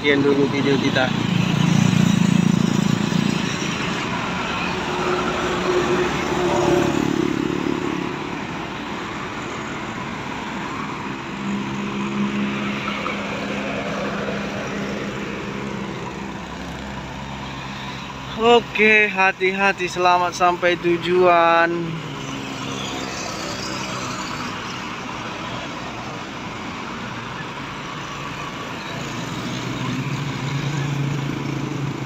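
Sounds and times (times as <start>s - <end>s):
cars and motorcycles driving past: 0.0s - 18.8s, 19.8s - 32.0s.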